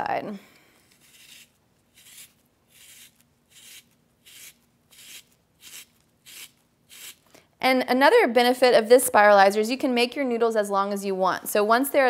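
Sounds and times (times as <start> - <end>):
spiralizer blade rasping scrape: 0.9 - 7.2.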